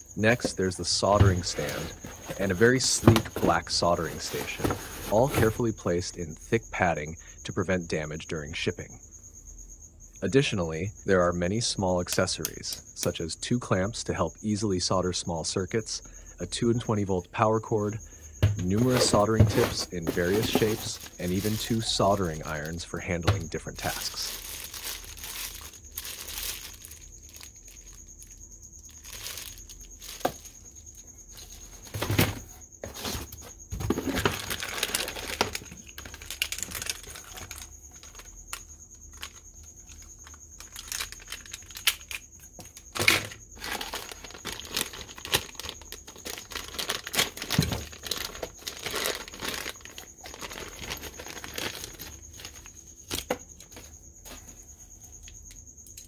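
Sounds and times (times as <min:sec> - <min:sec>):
plastic bags crinkling: 0:00.2 - 0:05.6, 0:18.6 - 0:30.6, 0:33.8 - 0:42.2, 0:42.9 - 0:52.7.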